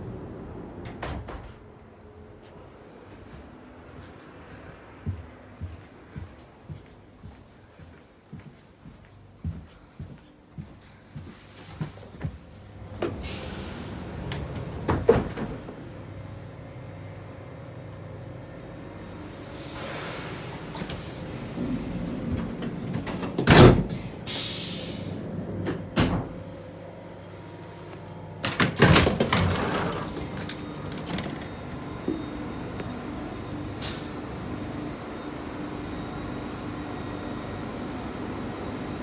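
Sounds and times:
train door opening clunks: 0:00.8 - 0:01.8, 0:12.9 - 0:16.0, 0:20.6 - 0:26.5, 0:28.4 - 0:33.0.

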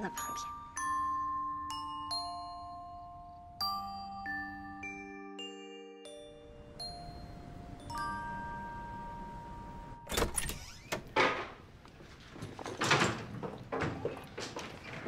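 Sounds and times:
door pulled open: 0:10.0 - 0:15.0
footsteps: 0:11.8 - 0:15.0
wheeled suitcase rolling: 0:12.0 - 0:15.0.

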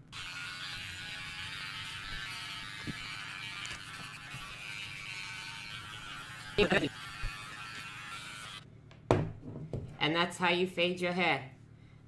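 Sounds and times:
electric hair clippers buzzing: 0:00.0 - 0:08.7.

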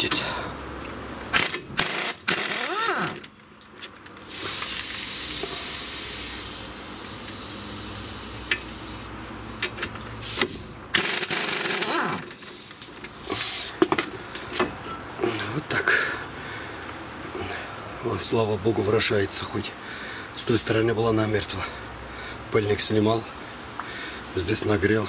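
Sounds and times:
impact wrench air hiss: 0:04.2 - 0:13.8.

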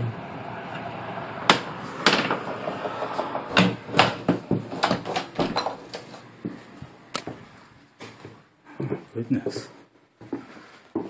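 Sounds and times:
door closing clatter: 0:00.8 - 0:06.3.

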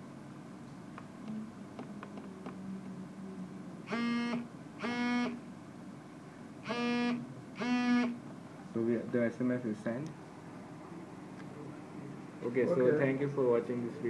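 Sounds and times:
buzzy electronic phone beeps: 0:03.9 - 0:05.4, 0:06.7 - 0:08.2.

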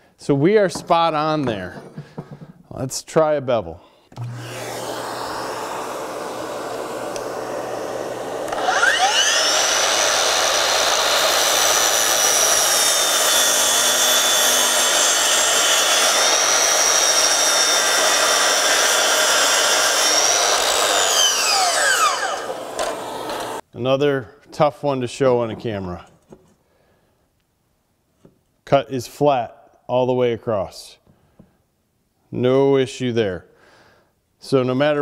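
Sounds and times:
vacuum running: 0:04.1 - 0:23.6
miter saw motor whining: 0:04.2 - 0:23.6
saw blade cutting board: 0:04.2 - 0:23.6.

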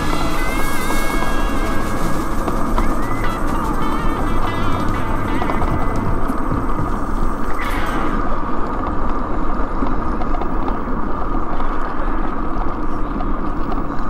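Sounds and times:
small scooter running: 0:00.0 - 0:14.0.

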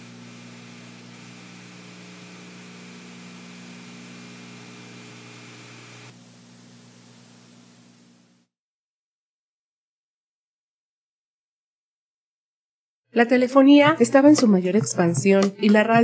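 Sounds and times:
faint high whine: 0:00.0 - 0:08.5
low mains hum: 0:00.0 - 0:08.5
tape hiss: 0:00.0 - 0:08.5.

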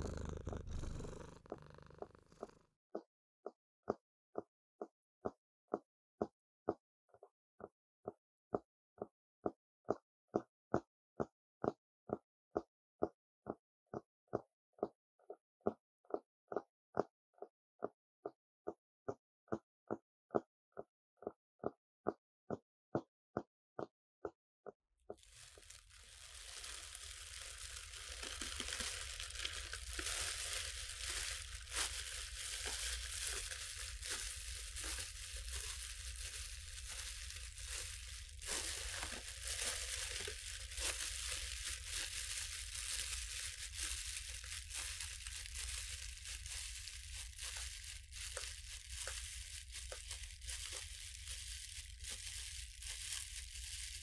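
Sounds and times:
plastic bags crinkling: 0:00.0 - 0:01.5, 0:25.2 - 0:54.0.

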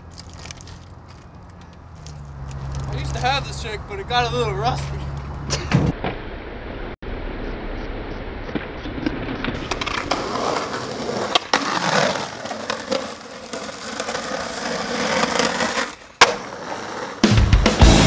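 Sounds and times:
skateboard wheels rolling on asphalt: 0:00.0 - 0:06.2, 0:08.5 - 0:17.4
skateboard clacking on ground: 0:09.5 - 0:17.2
skateboard scraping concrete ledge: 0:09.5 - 0:17.3
music: 0:17.2 - 0:18.0.

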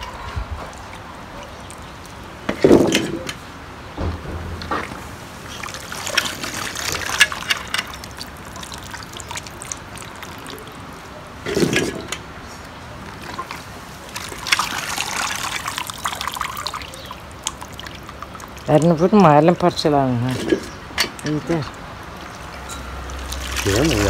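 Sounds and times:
water splashing and trickling: 0:00.0 - 0:24.0
dull thump: 0:04.0 - 0:05.2.

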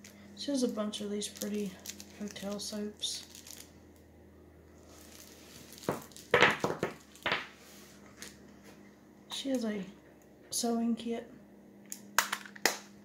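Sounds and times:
soaps knocking in cardboard box: 0:05.8 - 0:07.5.

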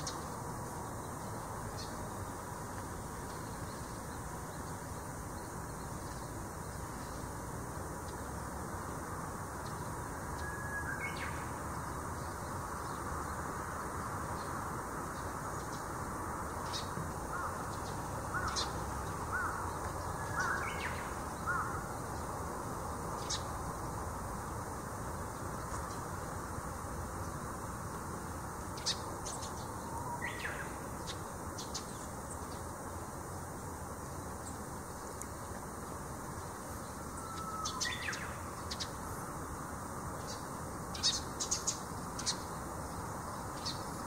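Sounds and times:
outdoor background hiss: 0:00.0 - 0:44.0
small birds chirping: 0:00.0 - 0:44.0
crow cawing: 0:17.3 - 0:17.6, 0:21.5 - 0:21.8.

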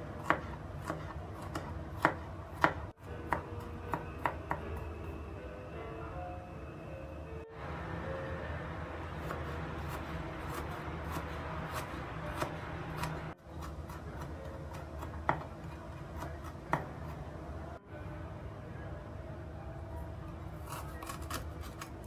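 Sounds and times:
knife chopping on plastic board: 0:09.9 - 0:17.1.

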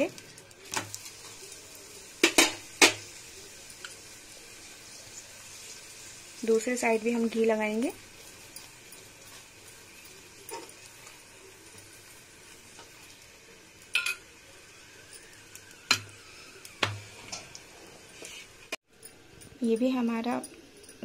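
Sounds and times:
faint sizzle of frying: 0:00.0 - 0:21.0
spoon clinking against pan: 0:13.9 - 0:14.3.

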